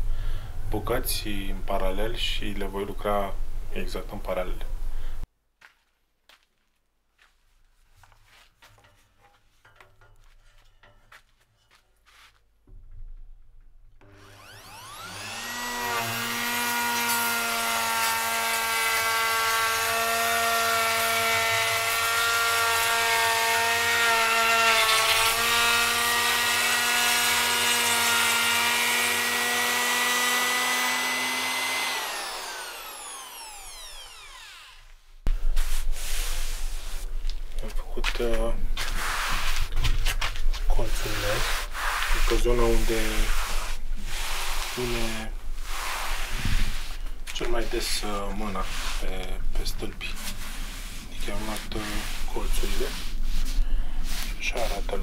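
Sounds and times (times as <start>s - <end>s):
electric wood router whining: 14.0s - 35.1s.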